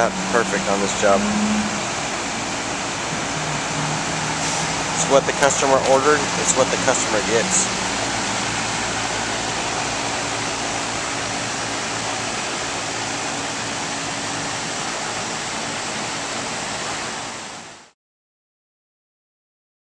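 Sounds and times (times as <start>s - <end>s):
low hum: 0.0s - 16.7s
fan air rushing: 0.0s - 17.9s.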